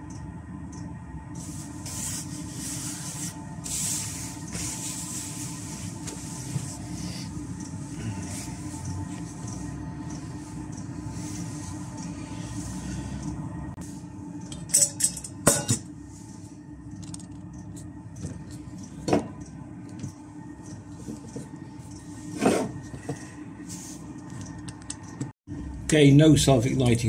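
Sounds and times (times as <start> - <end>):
low hum of diesel heater: 0.0 - 27.0
metal pot and spoon clinking: 14.5 - 15.9.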